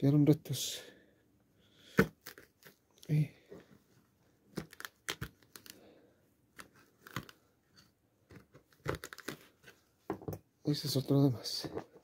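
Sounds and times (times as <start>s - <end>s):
shoe material cracking and tearing: 1.9s - 2.8s, 4.5s - 5.8s, 6.5s - 7.5s, 8.3s - 9.6s.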